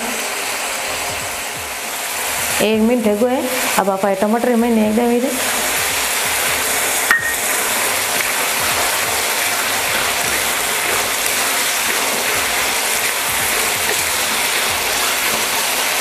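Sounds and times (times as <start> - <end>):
vegetables sizzling in hot oil: 0.0 - 16.0
steel spoon stirring and scraping: 7.5 - 16.0.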